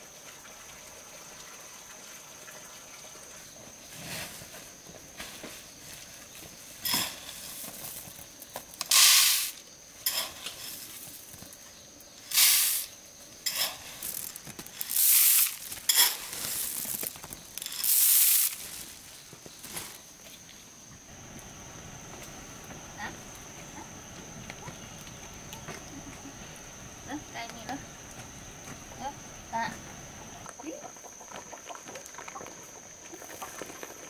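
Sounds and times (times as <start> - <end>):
corn kernels poured into basket: 6.8 - 11.5, 12.3 - 20.0
kernels rattling being scooped: 8.8 - 11.3, 12.3 - 20.0.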